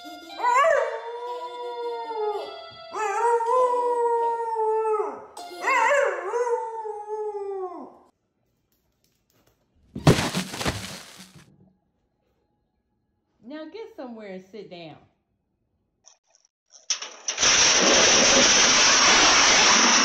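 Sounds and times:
dog jumping off sofa thump: 10.0 - 11.2.

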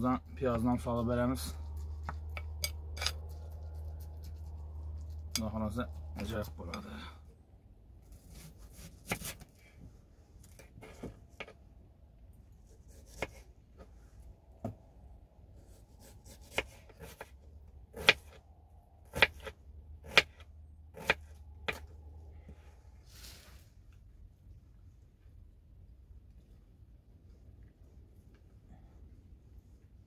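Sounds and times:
knife chopping on wooden board: 8.3 - 9.4, 12.9 - 13.4, 16.0 - 17.3, 17.9 - 18.4, 19.1 - 21.9.

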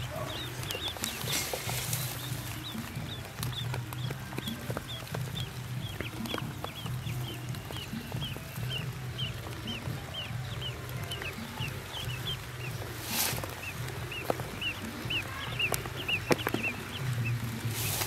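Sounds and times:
rustle: 0.0 - 3.5, 12.0 - 18.0
ducklings peeping: 0.0 - 18.0.

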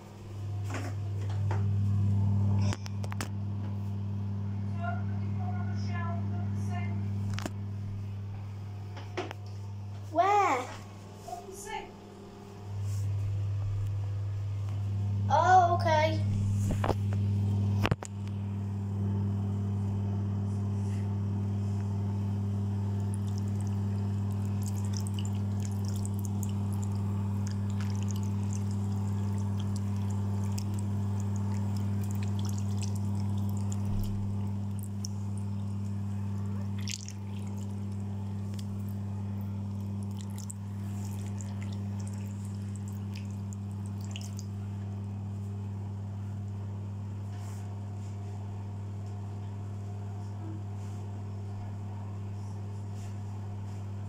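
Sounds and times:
extractor fan humming: 0.0 - 54.0
water drips and clicks: 22.9 - 44.6
water running and trickling: 22.9 - 44.7.

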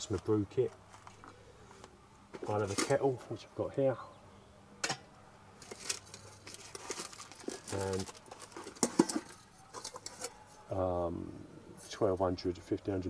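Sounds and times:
packet crinkling: 5.6 - 10.3
metal kettle clink: 8.8 - 10.3.

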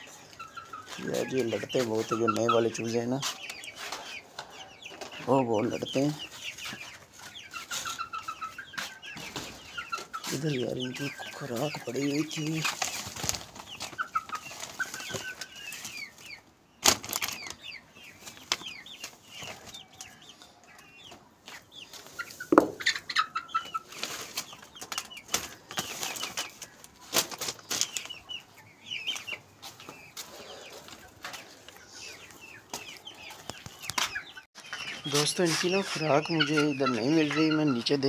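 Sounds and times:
chicks cheeping and clucking: 0.0 - 38.0
sharp knocks: 22.5 - 22.8.

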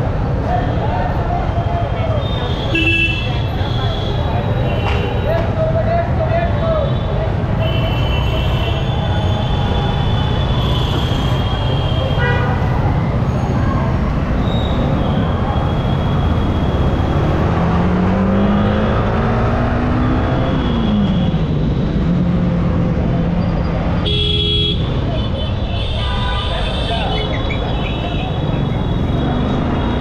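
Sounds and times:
wind and road noise: 0.0 - 30.0
vehicle horns honking: 2.2 - 5.1, 10.1 - 12.8, 24.0 - 30.0.

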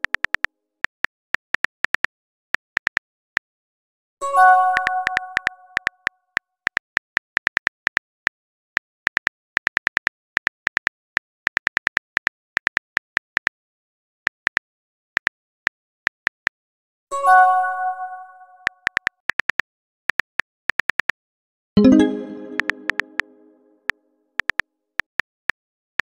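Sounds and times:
multi-tone message chime: 21.8 - 23.7.

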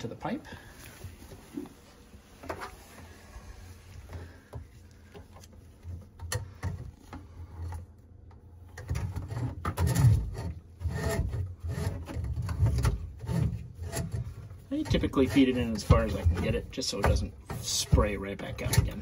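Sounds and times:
hose rubbing and scraping in pipe: 8.9 - 19.0.

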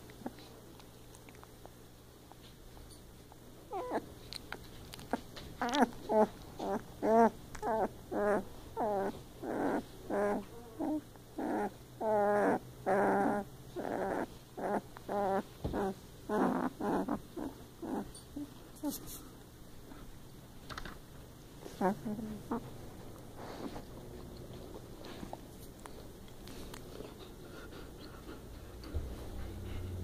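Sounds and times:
puppy whimpering and crying: 3.7 - 4.0, 5.6 - 18.5, 21.8 - 22.7.

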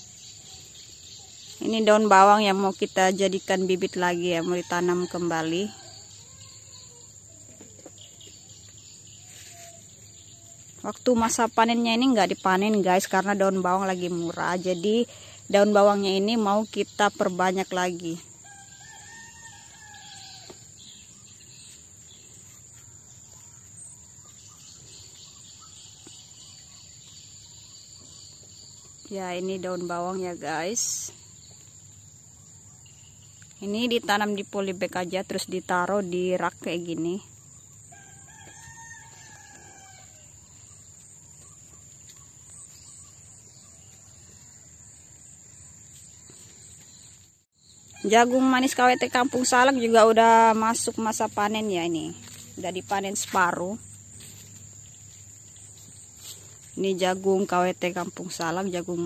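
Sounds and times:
insects buzzing: 0.0 - 59.0
rooster crowing: 18.4 - 20.7, 37.9 - 40.4.

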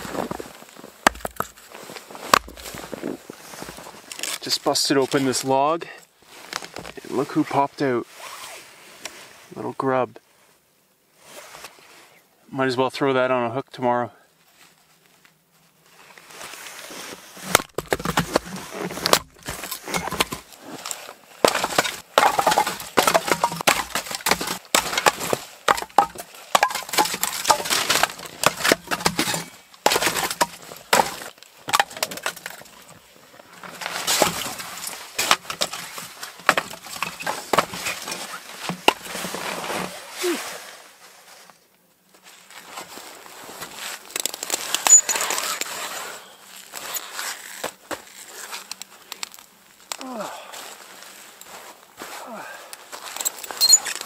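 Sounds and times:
firewood clattering onto woodpile: 1.0 - 3.0, 17.5 - 32.8, 33.6 - 39.4
hand ice auger scraping through ice: 16.6 - 32.5, 44.5 - 48.7, 53.0 - 54.0.

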